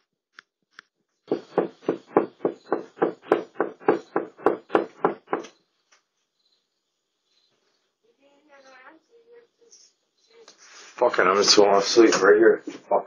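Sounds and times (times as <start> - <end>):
fist knocking on door: 1.3 - 5.5.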